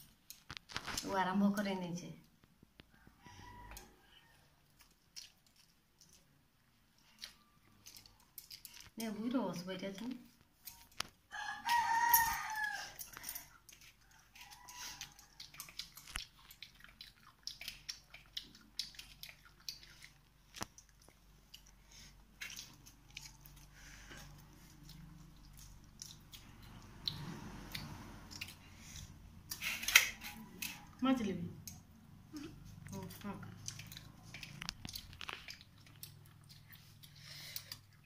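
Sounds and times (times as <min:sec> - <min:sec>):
rooster crowing: 0:02.9 - 0:04.5, 0:11.3 - 0:13.5
hands eating from steel plates: 0:07.0 - 0:31.0.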